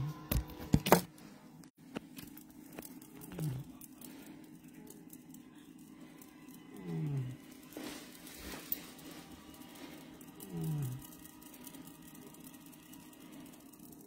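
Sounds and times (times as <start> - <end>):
faint steady hum: 0.0 - 14.0
low falling vocal sounds: 6.7 - 7.5, 10.3 - 11.2.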